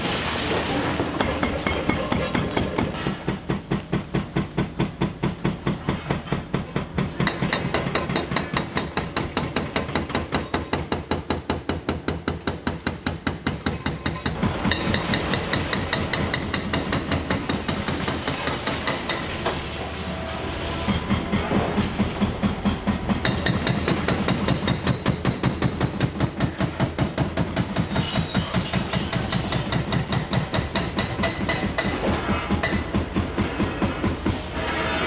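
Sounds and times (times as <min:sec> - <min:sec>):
hydraulic breaker pounding concrete: 0:00.0 - 0:35.0
excavator engine and hydraulics: 0:14.2 - 0:35.0.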